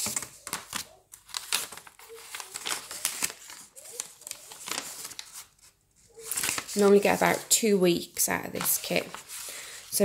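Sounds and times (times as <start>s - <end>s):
plastic packet crinkling: 0.0s - 7.5s.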